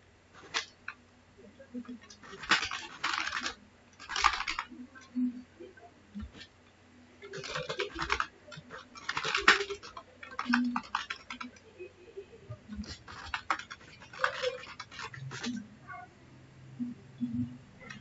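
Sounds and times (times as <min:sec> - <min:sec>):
computer keyboard typing: 0:00.4 - 0:01.0, 0:01.7 - 0:06.6, 0:07.2 - 0:15.7, 0:17.8 - 0:18.0.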